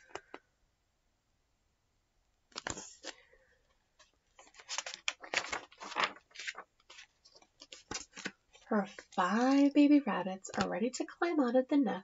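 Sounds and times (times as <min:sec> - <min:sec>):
book pages rustling: 0:02.5 - 0:09.8, 0:10.5 - 0:10.7.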